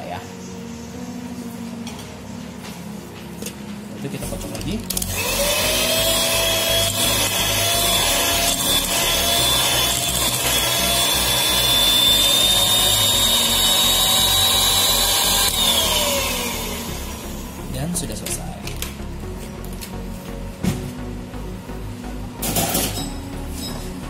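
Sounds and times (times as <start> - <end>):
electric hand mixer whining: 4.9 - 17.7.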